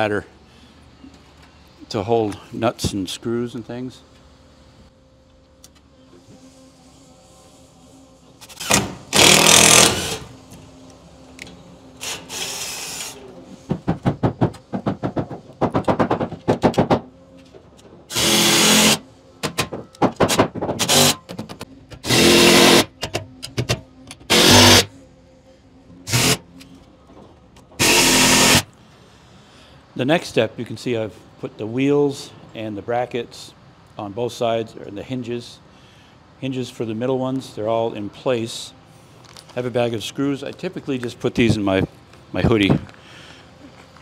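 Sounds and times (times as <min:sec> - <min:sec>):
impact driver whirring bursts: 0:08.6 - 0:10.3, 0:18.1 - 0:19.0, 0:22.0 - 0:22.9, 0:24.3 - 0:24.9, 0:26.1 - 0:26.4, 0:27.8 - 0:28.6.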